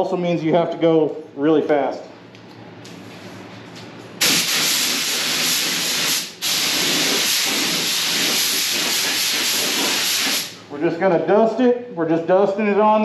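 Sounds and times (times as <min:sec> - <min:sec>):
paint spray gun hissing: 0:04.2 - 0:10.6.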